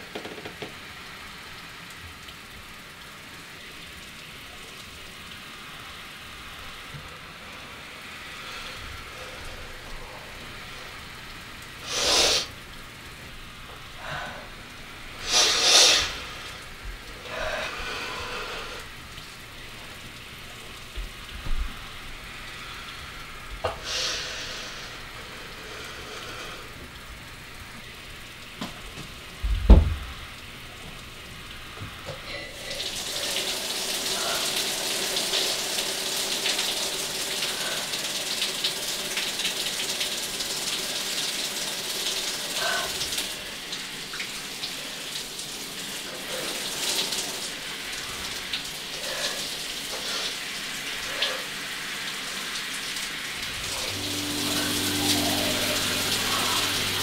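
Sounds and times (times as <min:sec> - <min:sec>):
shower running: 0:00.0 - 0:57.0
heavy thump: 0:29.6 - 0:30.1.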